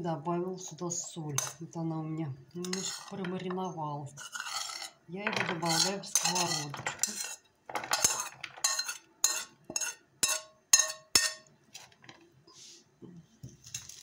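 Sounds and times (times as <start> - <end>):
metal utensil clinking on enamel bowl: 1.0 - 1.6, 2.6 - 3.6, 4.2 - 11.5.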